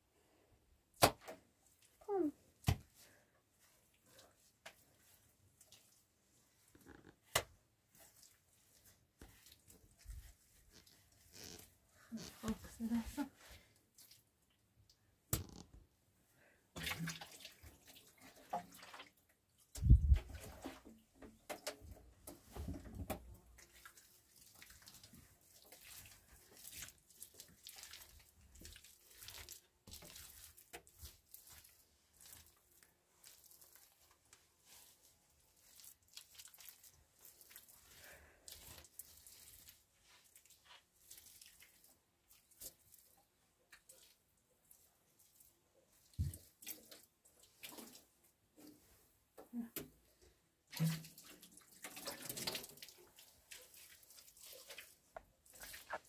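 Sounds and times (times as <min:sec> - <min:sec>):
wet mud squelching and scraping: 0:53.5 - 0:56.0.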